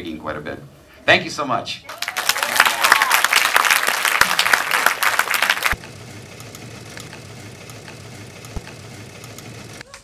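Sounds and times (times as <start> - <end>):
audience applauding: 1.9 - 5.8.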